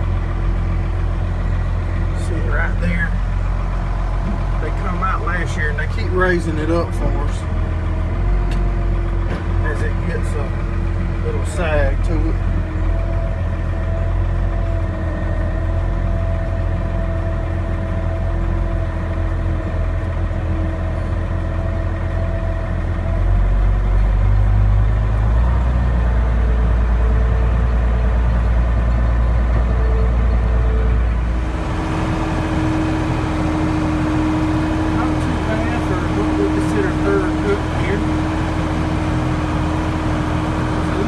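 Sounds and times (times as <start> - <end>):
tractor engine drone: 0.0 - 41.0
baler mechanical hum: 25.9 - 41.0.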